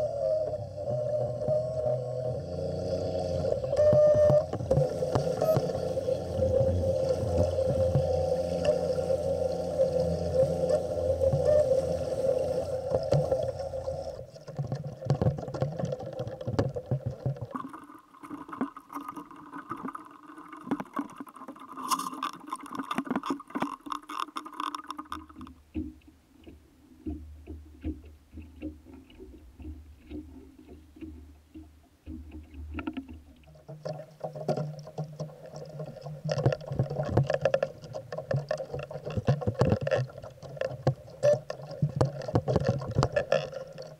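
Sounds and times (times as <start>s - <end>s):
outboard motor running: 0.0s - 14.3s.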